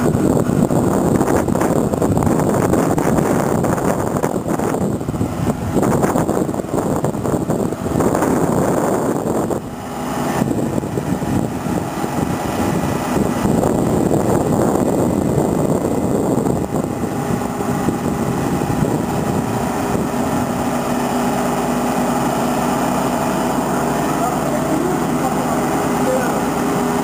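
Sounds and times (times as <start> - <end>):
loud rumbling noise: 0.0 - 27.0
motor-generator humming: 0.0 - 27.0.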